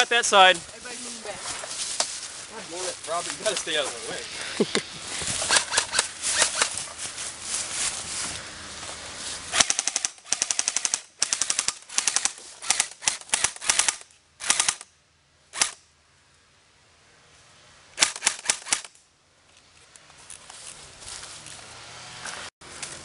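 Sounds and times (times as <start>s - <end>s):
airsoft rifles firing: 5.5s - 6.8s, 9.5s - 14.8s, 18.0s - 18.9s.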